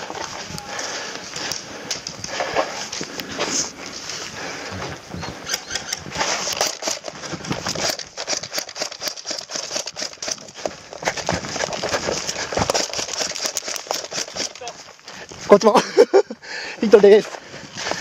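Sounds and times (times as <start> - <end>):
footsteps on gravel: 0.0 - 5.3, 6.0 - 15.8
footsteps through tall grass: 0.0 - 5.3.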